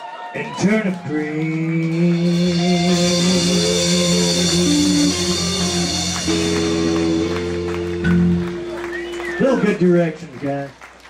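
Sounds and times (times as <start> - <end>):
person singing: 0.4 - 8.8
country-rock band playing: 1.9 - 10.6.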